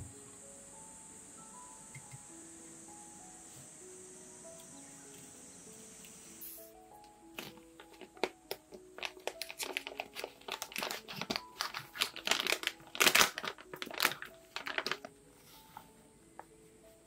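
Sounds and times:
foil pouch crinkling: 7.4s - 15.2s.

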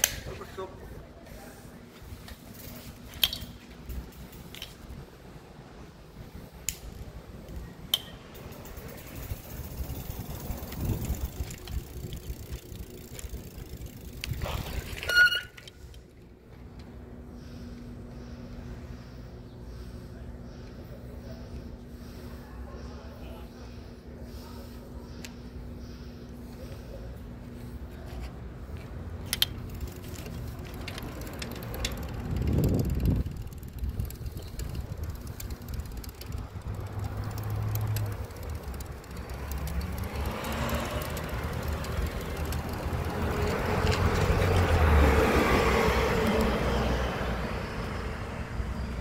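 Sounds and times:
bicycle rolling over rough pavement: 6.4s - 16.9s, 27.8s - 47.2s
wind buffeting microphone: 9.3s - 12.7s, 31.7s - 37.0s
bicycle brake squeal: 14.4s - 15.9s
clicks and rattles: 29.2s - 45.0s.

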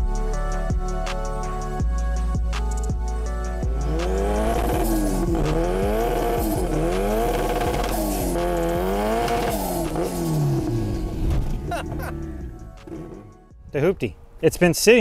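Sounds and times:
background music: 0.0s - 15.0s
car engine revving: 3.6s - 13.5s.

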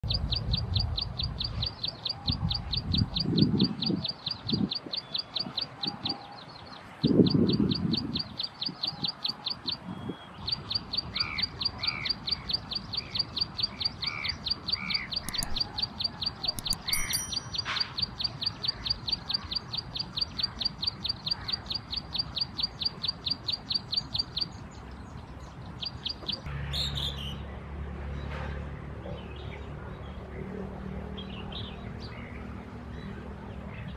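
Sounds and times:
bird singing buzzy notes: 7.0s - 24.6s.

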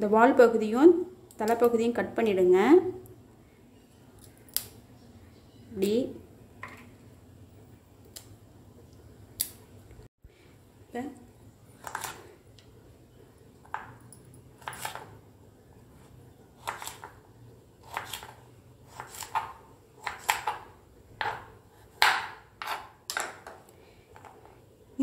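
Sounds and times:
knife chopping on wooden board: 16.6s - 17.2s, 17.8s - 23.3s.

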